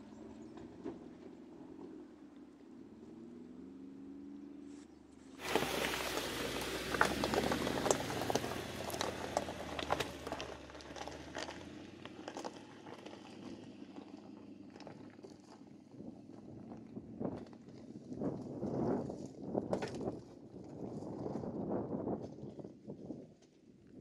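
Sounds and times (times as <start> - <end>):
low engine hum: 0.0 - 21.9
tyres crunching over gravel: 5.4 - 21.5.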